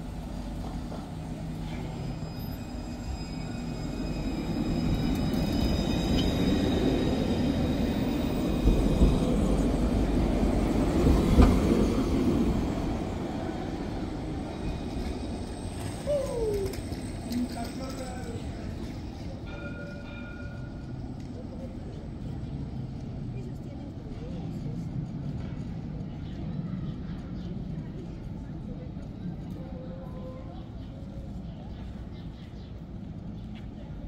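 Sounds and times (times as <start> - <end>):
tram high whine: 0.0 - 23.3
tram rumbling past: 0.0 - 34.0.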